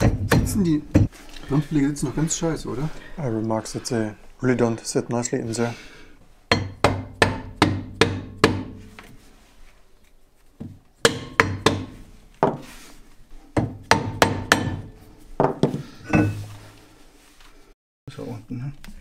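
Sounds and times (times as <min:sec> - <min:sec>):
mallet knocking on brake drum: 0:06.5 - 0:08.8, 0:11.0 - 0:12.6, 0:13.6 - 0:15.7.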